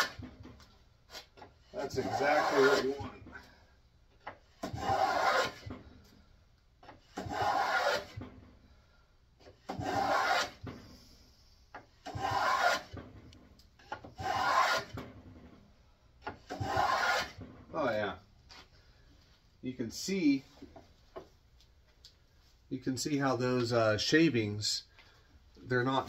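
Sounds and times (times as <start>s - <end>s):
hand plane cutting wood: 1.4s - 3.1s, 4.6s - 5.8s, 6.8s - 8.2s, 9.6s - 10.6s, 12.0s - 13.0s, 13.8s - 15.0s, 16.3s - 17.4s.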